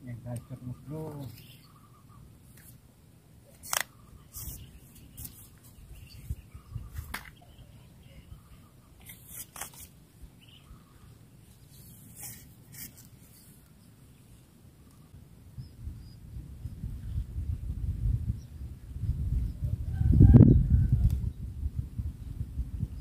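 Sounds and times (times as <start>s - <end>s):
sharp clicks: 3.5s - 5.4s.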